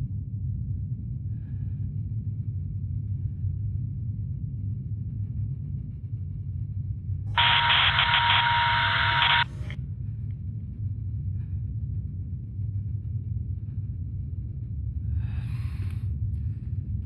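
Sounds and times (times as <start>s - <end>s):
low steady rumble: 0.0s - 7.3s, 9.6s - 17.0s
radio static with steady tone: 7.4s - 9.8s.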